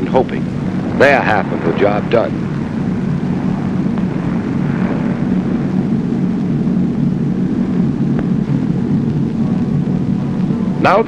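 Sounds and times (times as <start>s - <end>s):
radial aircraft engines droning: 0.0s - 11.0s.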